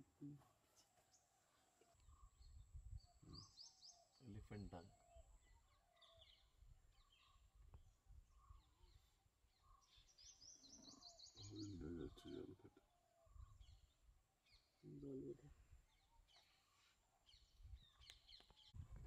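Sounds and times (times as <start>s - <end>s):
soft lower bird calls: 0.0s - 19.0s
high bird chirping: 8.3s - 15.2s.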